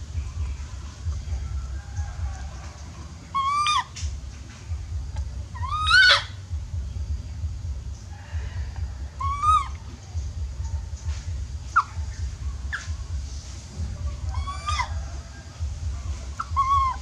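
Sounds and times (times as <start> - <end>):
low steady rumble: 0.0 - 17.0
baby monkey crying: 3.3 - 4.2, 5.5 - 6.5, 8.2 - 10.9, 11.6 - 13.2, 13.9 - 15.2, 15.8 - 17.0.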